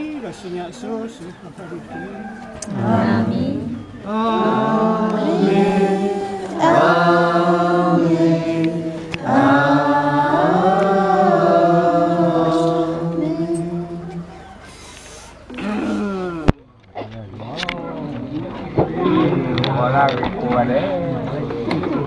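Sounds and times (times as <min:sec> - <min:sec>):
voices chanting slow melody: 0:02.5 - 0:15.4.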